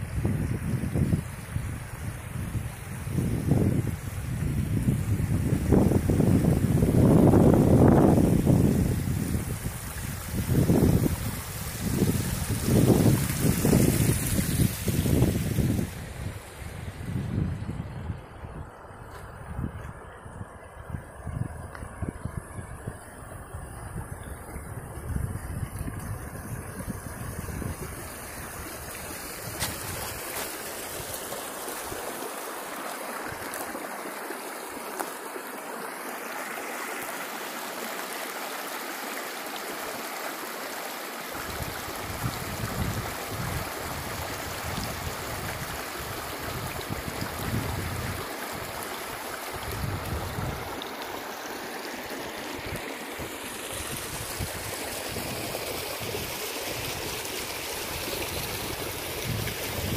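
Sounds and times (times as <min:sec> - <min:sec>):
river water rushing over rocks: 0:26.6 - 0:59.9.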